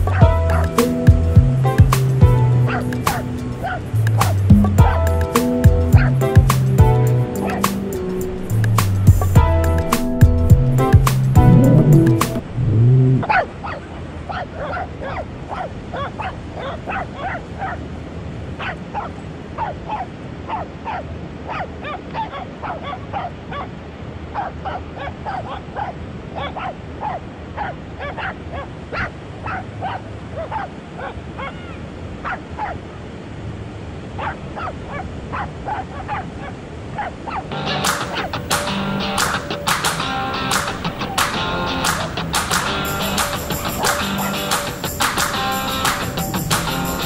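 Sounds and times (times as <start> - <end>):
dogs barking and yipping: 0.0 - 1.0, 2.2 - 5.3, 5.9 - 8.6, 13.2 - 17.8, 18.6 - 23.8, 24.4 - 32.9, 34.2 - 47.0
low background rumble: 11.4 - 13.3.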